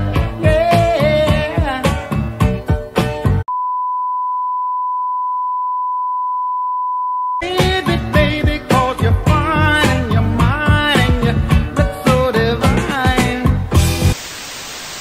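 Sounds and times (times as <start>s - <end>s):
music with singing voice: 0.0s - 3.4s, 7.4s - 14.2s
test tone beep: 3.5s - 7.4s.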